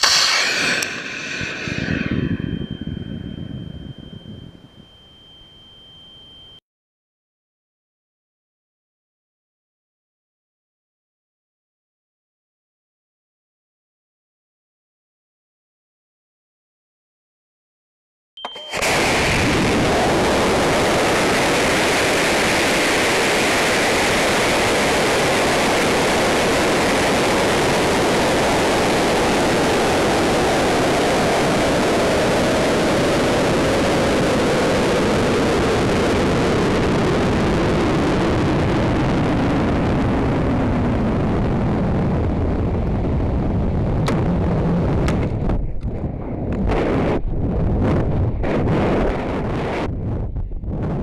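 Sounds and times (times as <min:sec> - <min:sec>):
rocket motor firing: 0:00.0 - 0:04.1, 0:18.7 - 0:30.8
air rushing past rocket: 0:00.0 - 0:04.5, 0:18.8 - 0:51.0.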